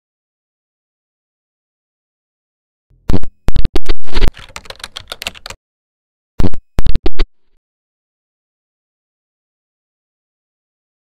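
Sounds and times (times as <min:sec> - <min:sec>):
keyboard keystroke clicks: 0:04.3 - 0:05.6.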